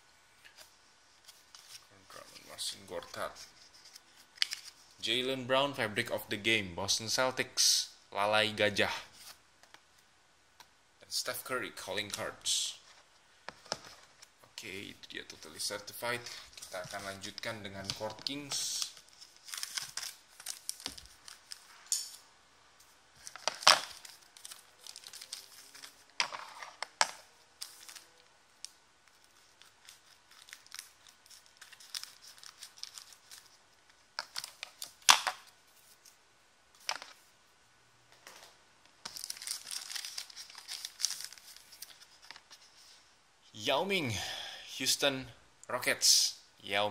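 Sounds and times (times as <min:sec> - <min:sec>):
foil wrapper crinkling: 0:16.2 - 0:21.7, 0:23.2 - 0:26.2, 0:29.1 - 0:35.2, 0:39.0 - 0:42.5.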